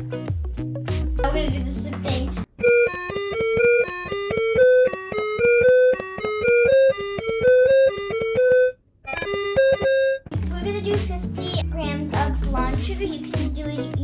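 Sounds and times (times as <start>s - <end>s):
quick bright melody: 2.6s - 13.1s.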